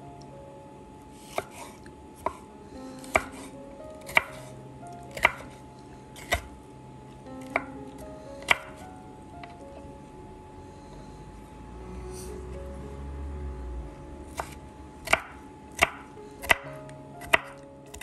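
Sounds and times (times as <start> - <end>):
soft background music: 0.0 - 18.0
knife chopping on wooden board: 1.2 - 3.5, 4.1 - 4.5, 5.1 - 5.6, 6.2 - 6.5, 8.4 - 8.8, 14.3 - 18.0.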